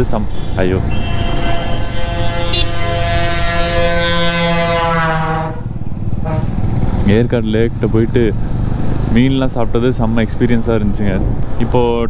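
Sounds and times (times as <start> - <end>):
motorcycle engine rumble: 0.0 - 12.0
wind noise: 0.0 - 12.0
bus horn long note: 0.4 - 6.5.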